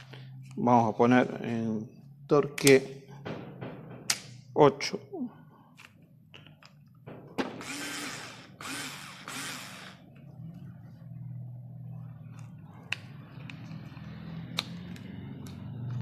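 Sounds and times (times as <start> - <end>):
cordless screwdriver whirring: 7.6 - 10.0.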